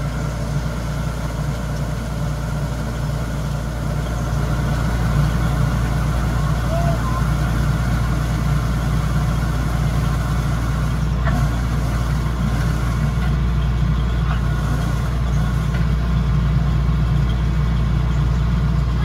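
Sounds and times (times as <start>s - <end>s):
diesel engine humming: 0.0s - 19.0s.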